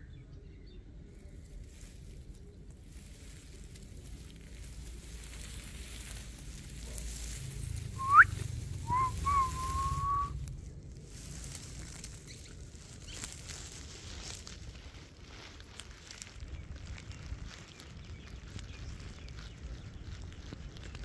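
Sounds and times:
person whistling: 0:08.0 - 0:10.4.

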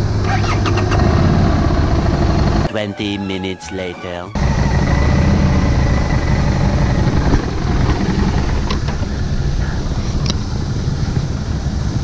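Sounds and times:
motorcycle engine running: 0:00.0 - 0:02.7, 0:04.4 - 0:12.0.

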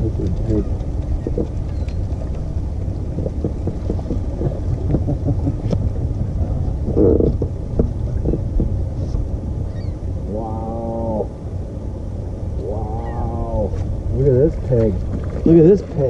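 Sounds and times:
wind rumbling on microphone: 0:00.0 - 0:16.0
water lapping against hull: 0:00.2 - 0:10.0, 0:13.6 - 0:16.0.

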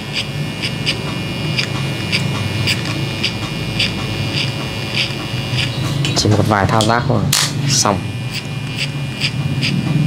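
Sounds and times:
clipper blade cutting hair: 0:00.0 - 0:10.0
electric hair clippers buzzing: 0:00.0 - 0:10.0.

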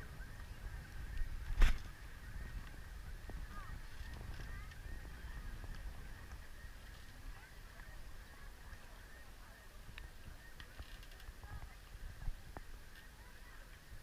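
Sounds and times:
low wind rumble: 0:00.0 - 0:14.0.

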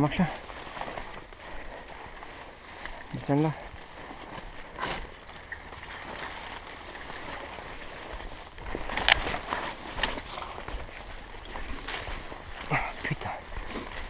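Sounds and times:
footsteps through leaf litter: 0:00.0 - 0:14.0
vegetation snapping: 0:08.8 - 0:10.5.

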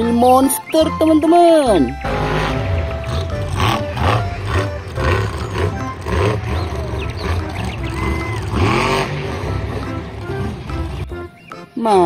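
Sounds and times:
background music: 0:00.0 - 0:12.0
monster truck engine revving: 0:01.9 - 0:11.3.

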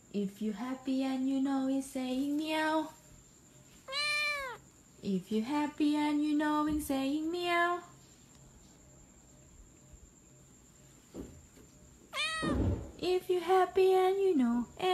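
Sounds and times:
cat meowing: 0:03.9 - 0:04.6, 0:12.1 - 0:12.8.

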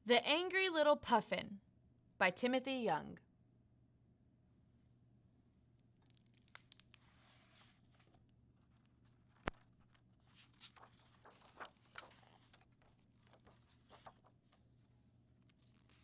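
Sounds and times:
book pages turning: 0:06.0 - 0:16.0.

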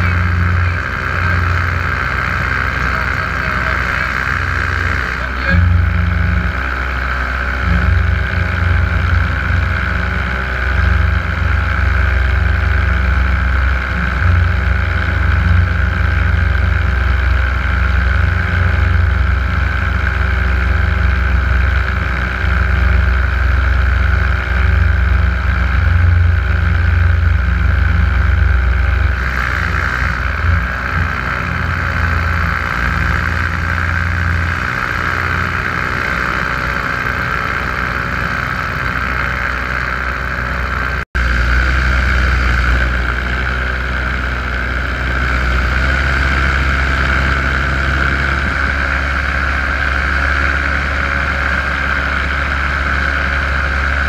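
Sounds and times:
paramotor engine running: 0:00.0 - 0:54.0.

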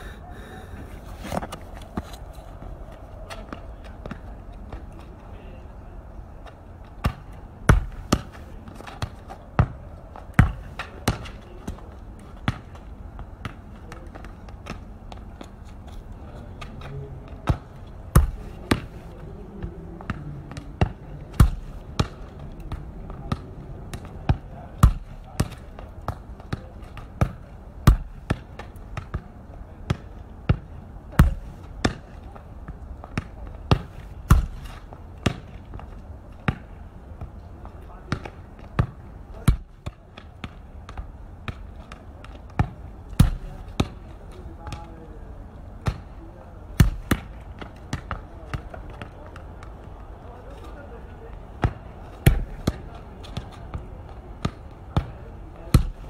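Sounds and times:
football thudding against surface: 0:27.2 - 0:28.4, 0:33.2 - 0:35.4, 0:42.6 - 0:43.9, 0:46.8 - 0:48.2, 0:51.6 - 0:52.8, 0:55.7 - 0:56.0.

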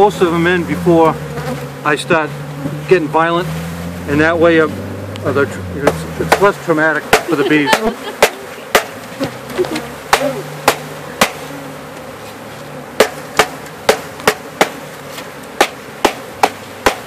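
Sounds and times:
honeybees humming: 0:00.0 - 0:17.0
sharp knocks on wooden box: 0:05.8 - 0:09.4, 0:10.1 - 0:11.4, 0:13.0 - 0:14.8, 0:15.6 - 0:17.0.

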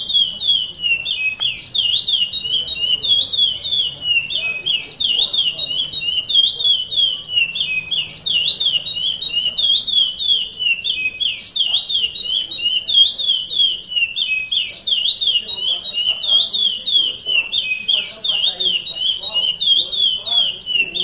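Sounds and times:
finch singing whistled notes: 0:00.0 - 0:21.0.

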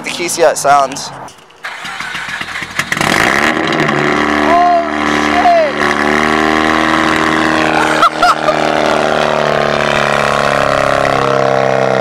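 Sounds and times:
rotary engine idling: 0:01.4 - 0:04.4.

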